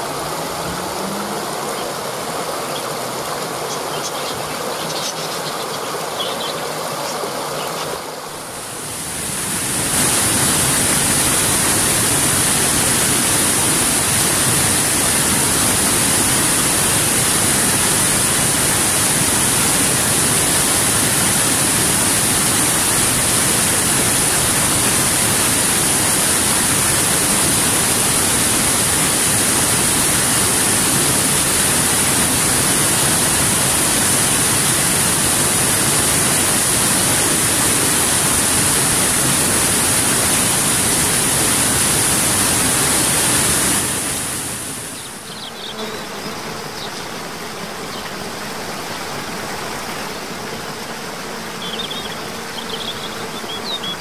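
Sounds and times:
waterfall rushing over rocks: 0.0s - 45.6s.

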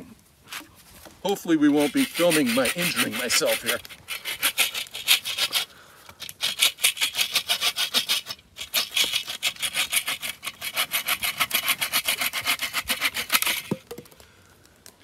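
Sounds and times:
bow saw cutting branch: 1.7s - 13.8s.

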